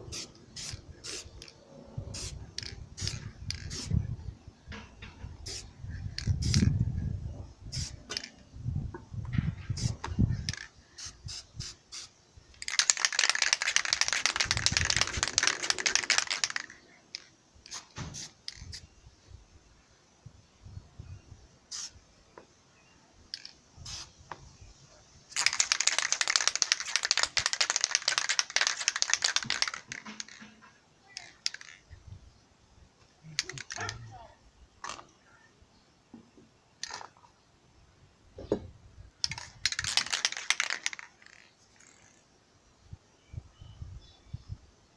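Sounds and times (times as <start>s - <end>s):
spray paint can hissing: 0.1s - 4.0s, 5.4s - 6.7s, 7.7s - 8.3s, 9.8s - 18.9s, 21.7s - 22.0s, 23.4s - 24.2s, 25.3s - 30.5s, 31.1s - 31.8s, 39.2s - 42.2s.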